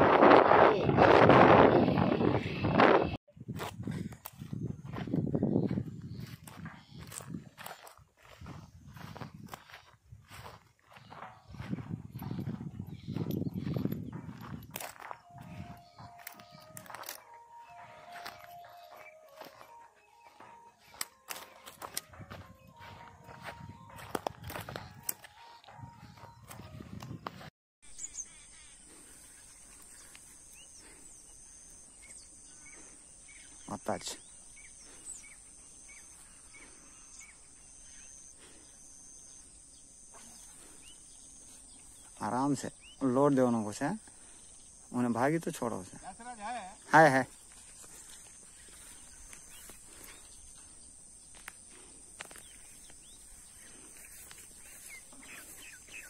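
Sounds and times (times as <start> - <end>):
bird chirps: 4.3 - 45.0, 52.2 - 56.0
high-pitched insect drone: 10.4 - 27.2, 29.1 - 56.0.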